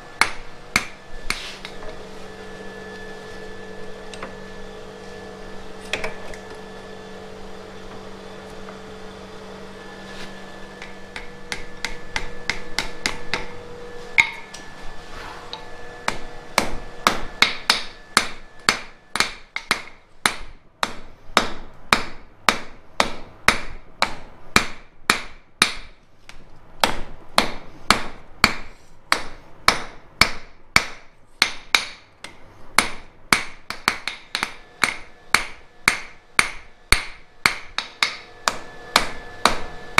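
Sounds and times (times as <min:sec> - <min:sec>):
steady hum: 0:00.0 - 0:39.9
hammer striking steel on anvil: 0:00.2 - 0:01.8, 0:10.8 - 0:13.6, 0:14.2 - 0:14.7, 0:16.0 - 0:25.9, 0:26.8 - 0:39.9.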